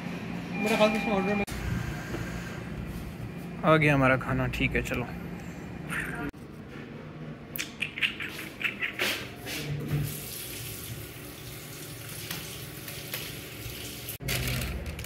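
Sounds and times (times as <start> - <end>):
tap water running over hands: 10.1 - 14.1.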